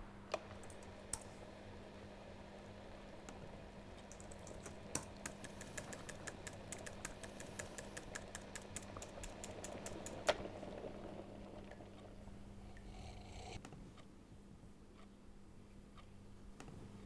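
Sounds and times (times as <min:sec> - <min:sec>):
faint steady hum: 0:00.0 - 0:17.0
laptop keyboard typing: 0:04.1 - 0:10.3.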